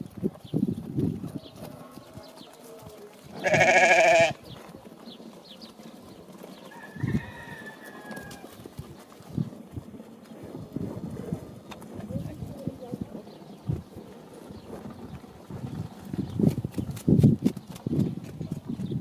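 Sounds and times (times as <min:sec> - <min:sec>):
sheep bleating: 0:03.3 - 0:04.4.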